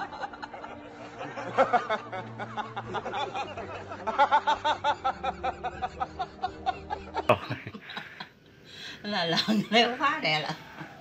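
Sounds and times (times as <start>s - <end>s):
low music drone: 0.0s - 8.2s
men laughing hard: 0.0s - 8.4s.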